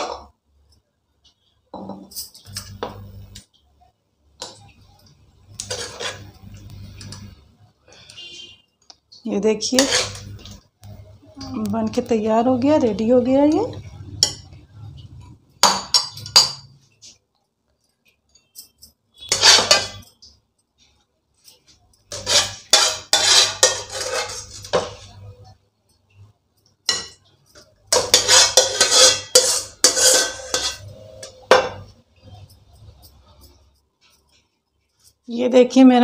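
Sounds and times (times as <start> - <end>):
metal spoon scraping ceramic bowl: 5.6 - 7.4, 9.7 - 10.6, 18.4 - 20.2, 22.1 - 25.2, 26.9 - 33.7.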